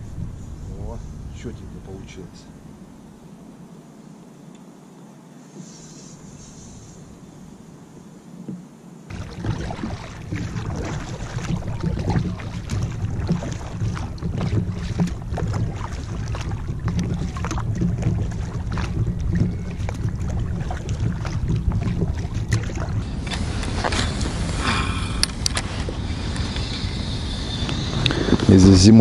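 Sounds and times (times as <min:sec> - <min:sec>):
wind buffeting microphone: 0:00.0 - 0:03.2, 0:08.4 - 0:29.0
paddle strokes splashing: 0:08.4 - 0:28.5
water rushing along kayak hull: 0:08.4 - 0:29.0.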